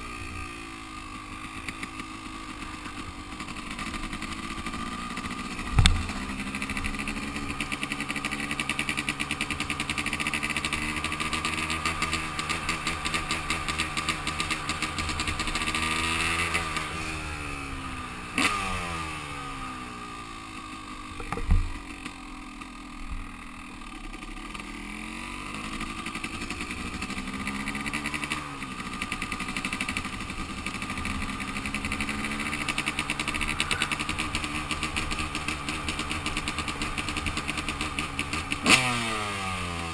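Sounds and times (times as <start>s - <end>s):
dirt bike engine running: 0.0s - 39.9s
sharp thumps: 5.6s - 6.4s, 21.2s - 21.9s.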